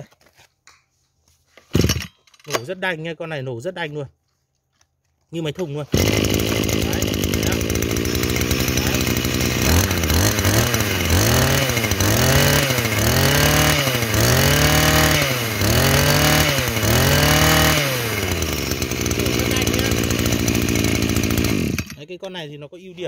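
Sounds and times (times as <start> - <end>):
brush cutter engine revving: 5.8 - 22.1.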